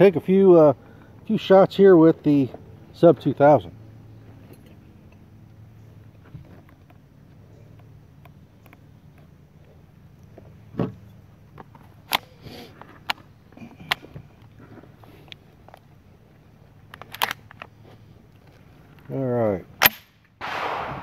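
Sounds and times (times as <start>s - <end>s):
rifle clacking and clicking: 16.9s - 17.7s.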